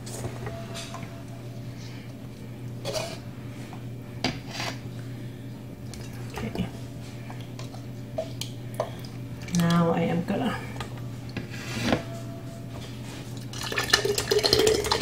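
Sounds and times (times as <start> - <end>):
steady low hum: 0.0 - 15.0
liquid pouring into glass jar: 13.5 - 15.0.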